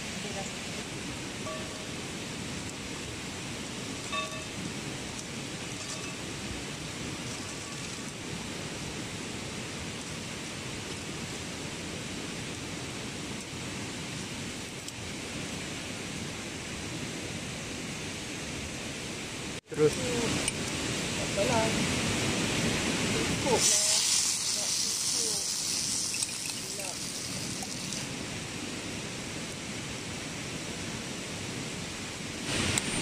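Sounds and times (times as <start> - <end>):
faint ringing note: 1.4 - 2.0, 4.1 - 4.6.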